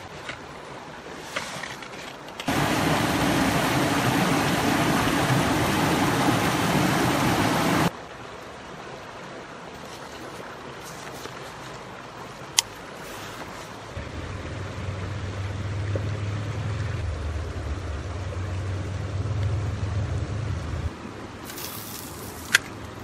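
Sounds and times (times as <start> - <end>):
river running over rocks: 0.0 - 14.8.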